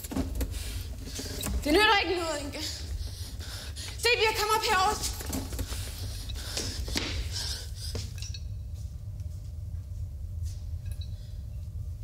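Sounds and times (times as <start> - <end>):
low hum and hiss: 0.0 - 12.0
light clicks and clinks: 8.0 - 8.8, 10.8 - 11.2.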